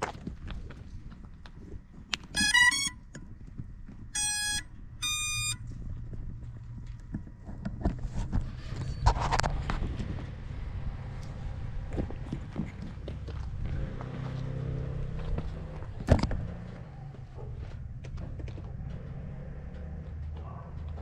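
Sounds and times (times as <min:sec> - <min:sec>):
drone motors beeping tune: 0:02.4 - 0:03.0, 0:04.2 - 0:05.6
footsteps: 0:11.3 - 0:21.0.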